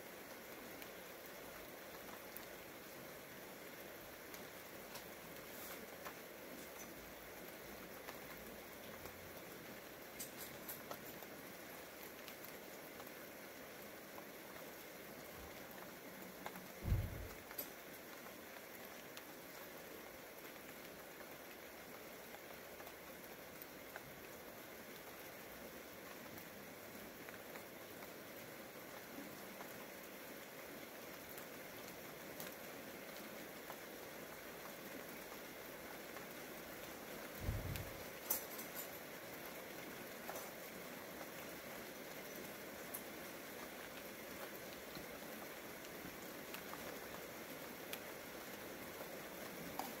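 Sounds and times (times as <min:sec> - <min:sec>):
rain falling: 0:00.0 - 0:50.0
dull low thump: 0:16.8 - 0:17.4.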